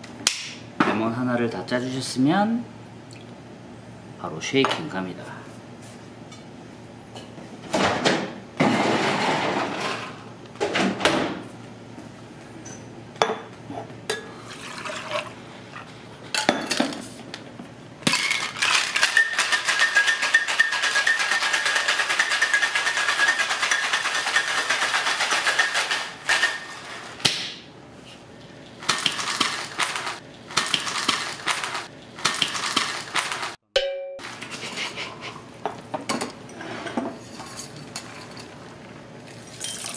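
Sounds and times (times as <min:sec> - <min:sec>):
ice and metal tins clinking: 0:18.2 - 0:24.8, 0:39.4 - 0:39.9
ice rattling in cocktail shaker: 0:18.2 - 0:26.5, 0:39.3 - 0:39.9.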